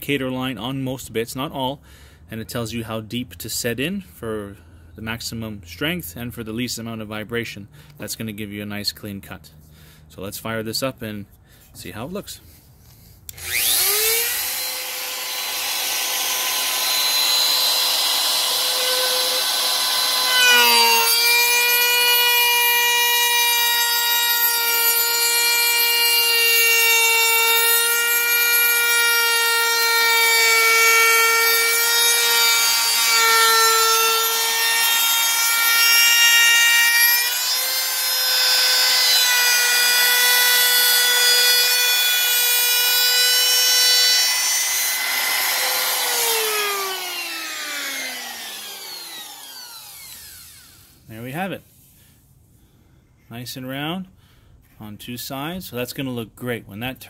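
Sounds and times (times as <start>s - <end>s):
router whining: 13.3s - 51.1s.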